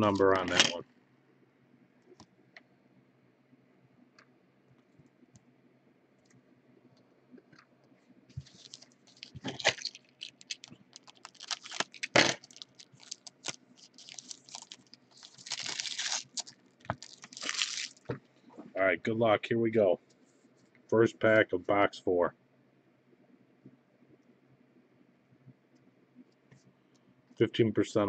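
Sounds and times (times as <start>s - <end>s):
foil packs crinkling: 8.4s - 18.1s.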